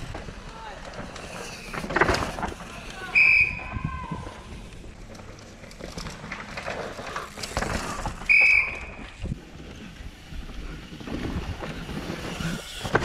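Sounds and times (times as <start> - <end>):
bike tyres skidding through dirt: 0.0 - 13.0
shrill whistle blasts: 3.0 - 3.9, 8.3 - 9.0.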